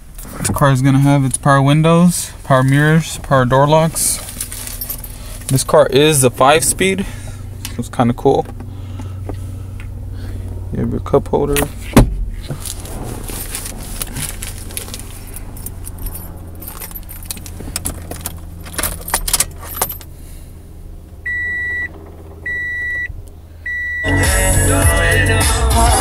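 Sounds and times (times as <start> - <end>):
low hum: 0.0 - 26.0
car keys jangling: 3.8 - 7.0, 12.5 - 20.2
car stereo music: 23.7 - 26.0.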